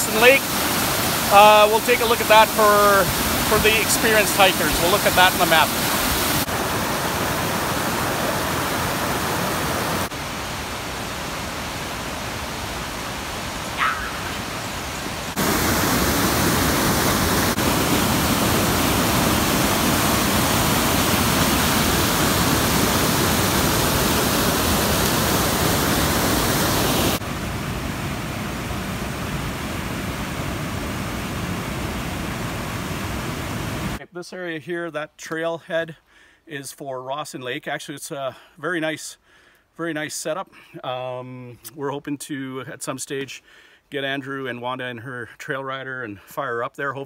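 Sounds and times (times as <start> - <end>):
waterfall rushing: 0.0 - 34.0.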